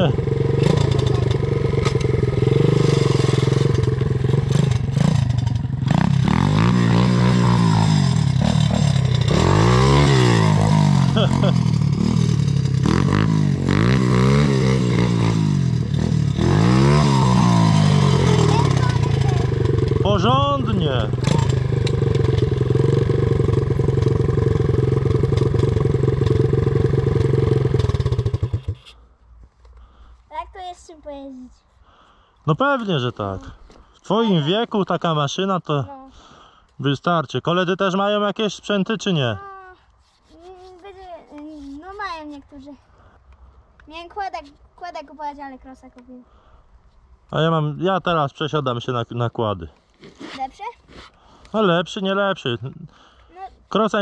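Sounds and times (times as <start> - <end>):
pit bike engine: 0.0 - 29.0
quad bike engine: 0.0 - 29.1, 34.2 - 34.6.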